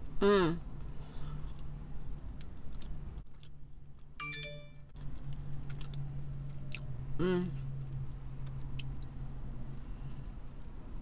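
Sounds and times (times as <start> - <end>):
chewing soft cookie: 0.8 - 4.2, 5.0 - 6.9
electronic chime ding: 4.2 - 4.9.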